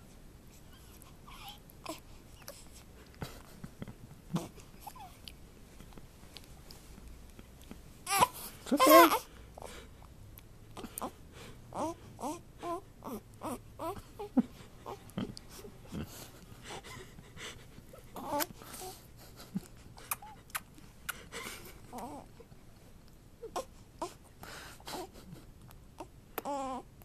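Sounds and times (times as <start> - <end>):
infant vocalizing: 8.1 - 9.3, 10.8 - 15.4, 18.2 - 18.9, 21.9 - 22.3, 26.0 - 26.9.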